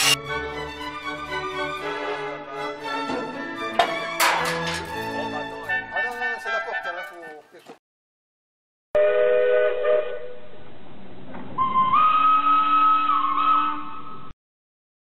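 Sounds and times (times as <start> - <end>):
steam locomotive whistle: 9.0 - 10.5, 11.6 - 14.3.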